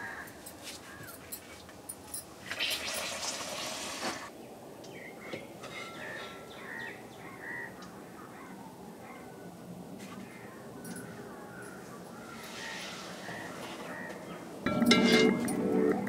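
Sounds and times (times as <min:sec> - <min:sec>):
hot oil sizzling: 0:02.5 - 0:04.3.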